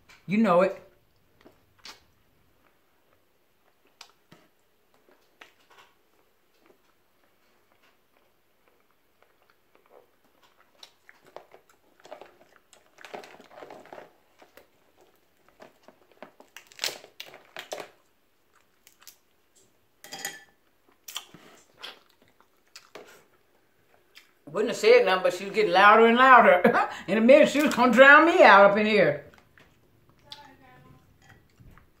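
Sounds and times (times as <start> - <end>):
chewing: 1.1 - 19.8, 20.6 - 24.4, 29.3 - 32.0
crab shells cracking by hand: 16.2 - 18.0.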